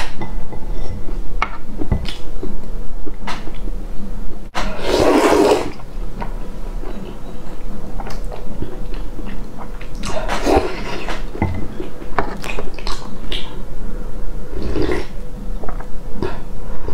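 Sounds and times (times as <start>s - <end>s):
slurping soup: 4.6s - 5.8s
chewing and lip-smacking: 6.9s - 11.2s, 11.8s - 13.6s.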